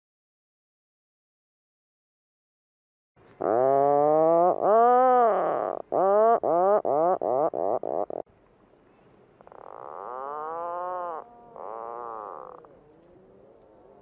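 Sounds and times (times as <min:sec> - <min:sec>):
puffin calls: 0:03.4 - 0:08.2, 0:09.4 - 0:14.0.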